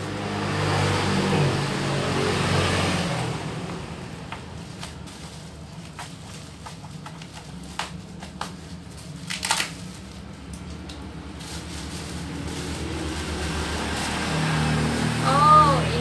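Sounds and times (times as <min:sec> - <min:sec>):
plastic packaging rustling: 0:04.0 - 0:15.8.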